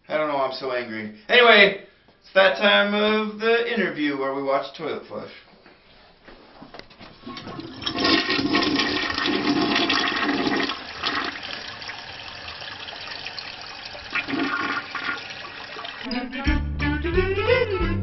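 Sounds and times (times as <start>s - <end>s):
toilet flushing: 7.1s - 16.1s
water running as bowl refills: 7.2s - 16.1s.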